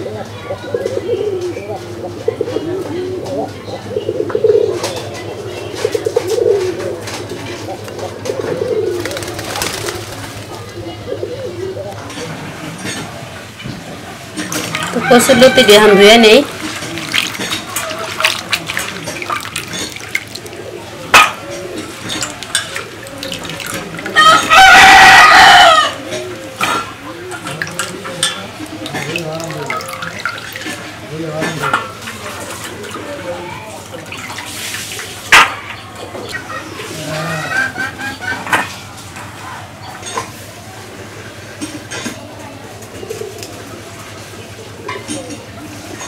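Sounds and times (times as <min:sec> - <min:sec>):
pigeons cooing: 0:00.0 - 0:13.5, 0:14.2 - 0:46.0
water splashing and dripping: 0:12.8 - 0:24.9, 0:26.5 - 0:33.1, 0:33.7 - 0:35.7
rooster crowing: 0:14.7 - 0:16.5, 0:24.1 - 0:26.4.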